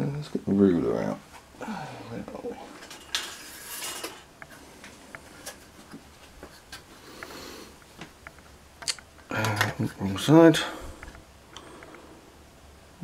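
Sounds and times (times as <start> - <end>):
rustling scrape: 2.7 - 6.7.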